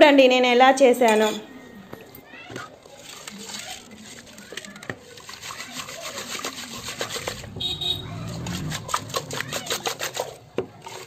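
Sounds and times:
salt scraping in clay pot: 3.0s - 11.0s.

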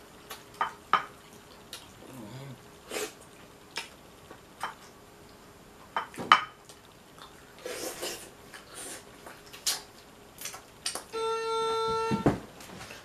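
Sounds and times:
chewing: 1.2s - 2.5s, 6.6s - 11.0s.

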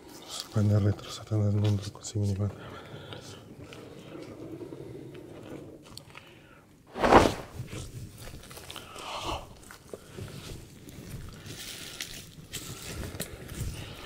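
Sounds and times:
short rush of noise: 6.9s - 7.6s.

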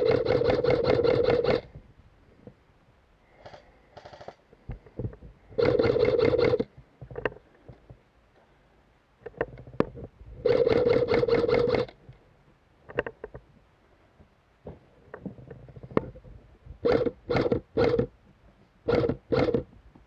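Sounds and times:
airsoft rifle full-auto bursts: 0.0s - 1.7s, 5.6s - 6.7s, 10.4s - 11.9s, 16.8s - 18.1s, 18.9s - 19.6s
sharp clicks and knocks: 12.9s - 13.5s.

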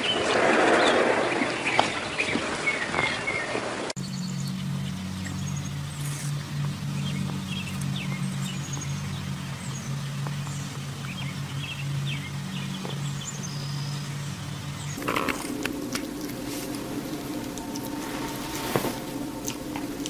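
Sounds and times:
small birds chirping: 0.0s - 20.0s
steady low hum: 4.0s - 20.0s.

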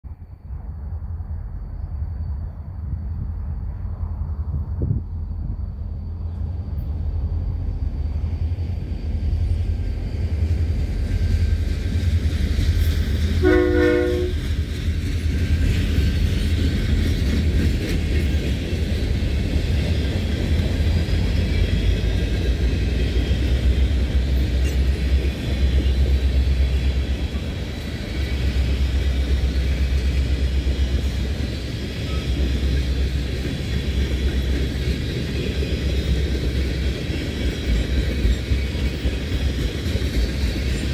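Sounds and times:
freight train rumbling: 0.0s - 40.9s
train horn blast: 13.4s - 14.5s.

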